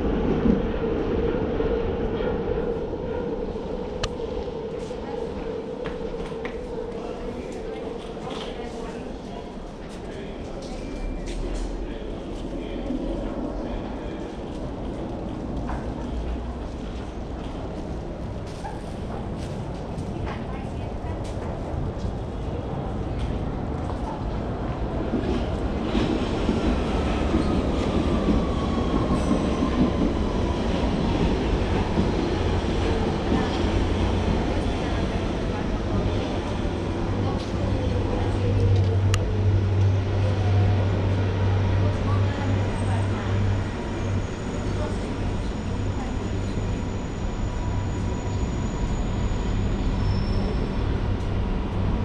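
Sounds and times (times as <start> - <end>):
train wheels rumbling on track: 0.0 - 52.0.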